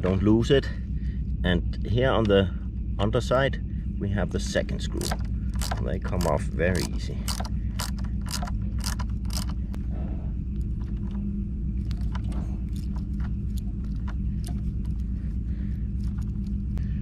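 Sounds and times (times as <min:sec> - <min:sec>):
low rumble: 0:00.0 - 0:17.0
ratchet screwdriver clicking: 0:05.0 - 0:09.6.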